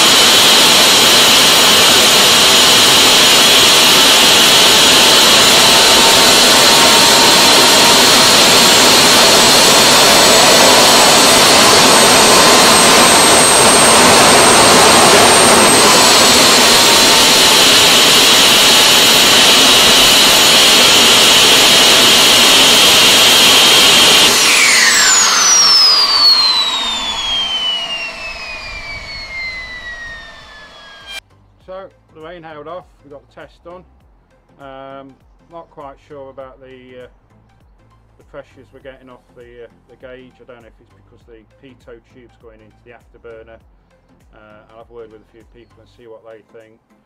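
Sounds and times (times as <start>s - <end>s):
jet engine whine and rush: 0.0s - 31.2s.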